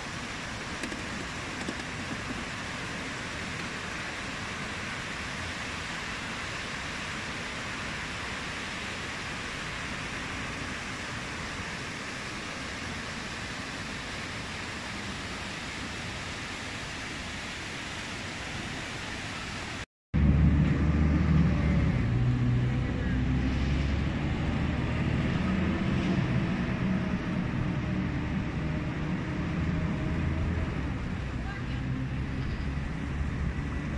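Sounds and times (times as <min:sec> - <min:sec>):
fountain water splashing: 0:00.0 - 0:19.8, 0:20.8 - 0:33.9
car engines passing: 0:20.2 - 0:33.9.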